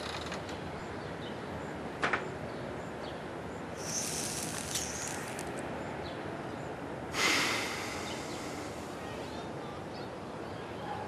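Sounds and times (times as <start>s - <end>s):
puff of exhaled breath: 3.8s - 5.4s, 7.1s - 9.0s
hissing inhale with crackling: 3.8s - 5.6s, 7.1s - 9.0s.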